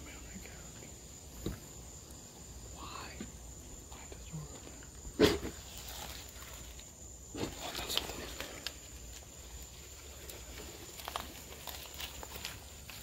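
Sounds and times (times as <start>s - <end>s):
sharp thump: 5.2s - 5.6s.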